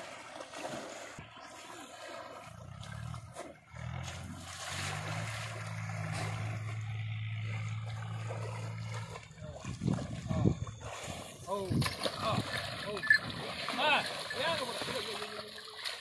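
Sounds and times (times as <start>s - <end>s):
water splashing and sloshing: 0.0s - 16.0s
steady low hum: 2.8s - 11.5s.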